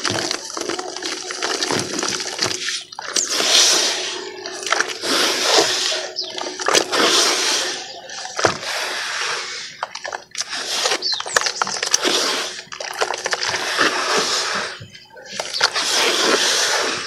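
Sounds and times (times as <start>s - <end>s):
water dripping: 0.0s - 5.2s, 9.8s - 12.0s, 12.6s - 13.9s
hands splashing in water: 0.0s - 9.2s, 9.8s - 16.7s
wet cement squelching: 0.0s - 17.0s.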